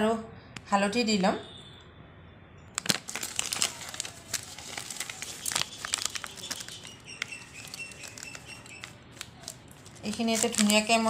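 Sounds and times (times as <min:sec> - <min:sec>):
plastic packet crinkling: 0:02.8 - 0:11.0.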